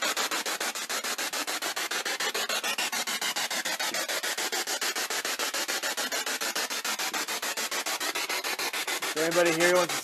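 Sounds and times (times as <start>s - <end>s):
radio static bursts: 9.1s - 10.0s.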